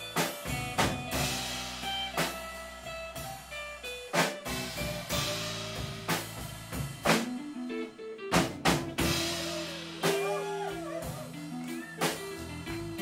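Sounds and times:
bass guitar: 0:00.0 - 0:13.0
drum kit and cymbals: 0:00.0 - 0:13.0
sustained guitar notes: 0:07.2 - 0:13.0.

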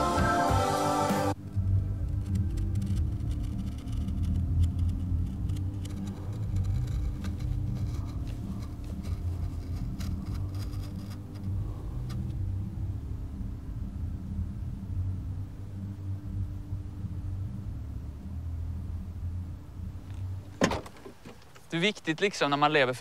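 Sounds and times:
steady low rumble: 0:01.3 - 0:20.6
pen scratching on paper: 0:05.8 - 0:12.2.

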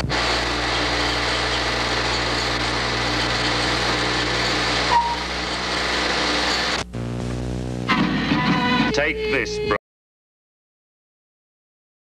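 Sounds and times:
low hum: 0:01.8 - 0:07.9
short beep: 0:04.9 - 0:05.2
film soundtrack hiss: 0:05.0 - 0:09.8.

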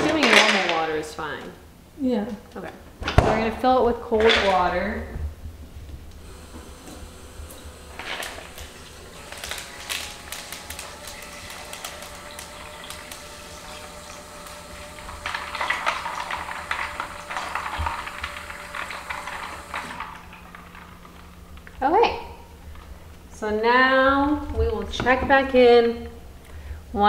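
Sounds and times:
tap water running into bowl: 0:06.2 - 0:21.3.

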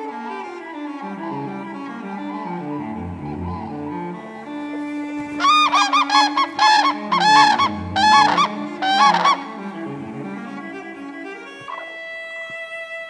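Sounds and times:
soft string music: 0:00.0 - 0:13.0
cranes trumpeting: 0:01.4 - 0:10.8.

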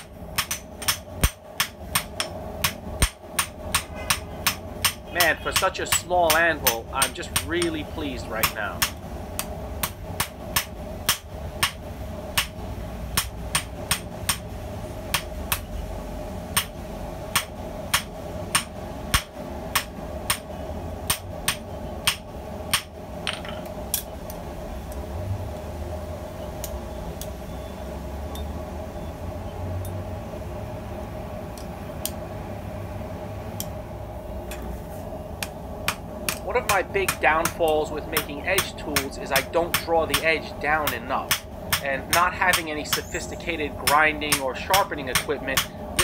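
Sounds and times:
hammer striking steel on anvil: 0:00.0 - 0:07.8, 0:09.8 - 0:12.6, 0:13.2 - 0:14.4, 0:17.3 - 0:24.1, 0:35.4 - 0:43.2, 0:43.8 - 0:45.8
steady hum: 0:00.0 - 0:46.0.

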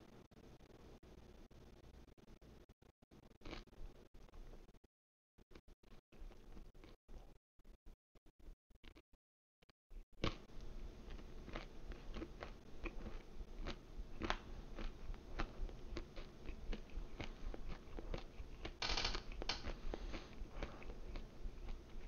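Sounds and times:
chewing crisp pizza crust: 0:03.2 - 0:04.5, 0:05.5 - 0:07.4, 0:10.2 - 0:22.0.

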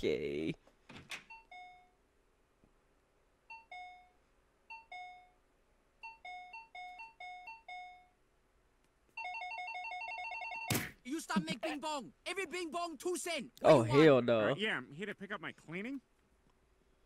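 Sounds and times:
shop doorbell chime: 0:01.3 - 0:02.0, 0:03.5 - 0:05.4, 0:06.0 - 0:08.1.

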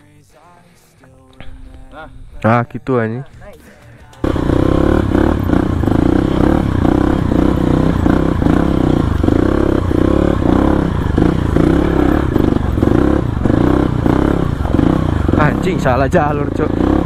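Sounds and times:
motorcycle engine revving: 0:04.2 - 0:17.0.

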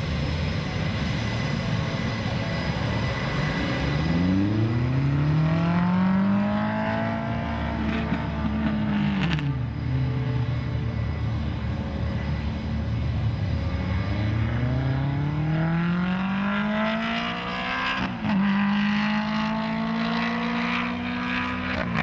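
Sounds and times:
jet engines spooling up: 0:00.0 - 0:16.8.

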